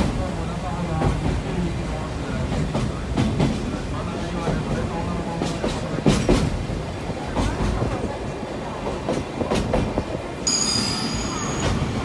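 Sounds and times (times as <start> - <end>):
train rumbling: 0.0 - 12.0.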